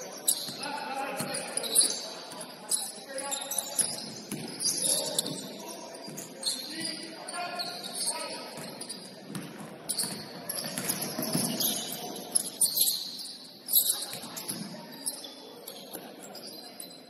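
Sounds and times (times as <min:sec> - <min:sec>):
murmur of voices: 0:00.0 - 0:17.0
sneaker squeaks: 0:00.0 - 0:17.0
basketball bouncing: 0:04.3 - 0:04.6, 0:09.3 - 0:11.6.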